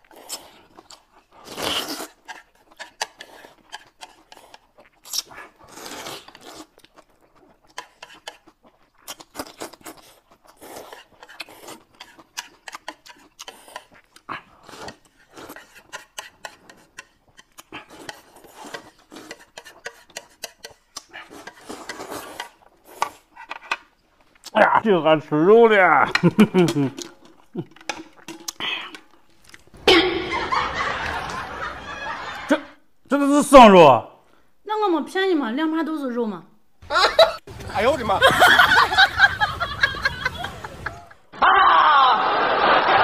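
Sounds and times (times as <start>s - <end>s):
people slurping noodles: 0.0s - 23.4s.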